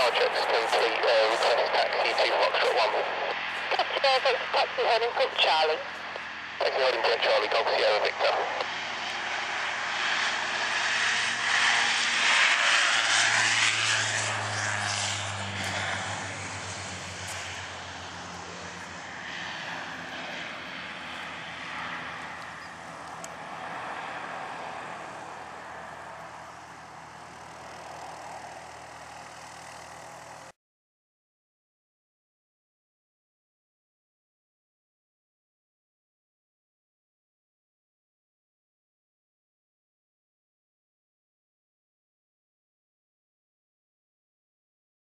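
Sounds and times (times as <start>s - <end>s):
low propeller drone: 0.0s - 30.6s
turboprop plane taking off: 0.0s - 30.6s.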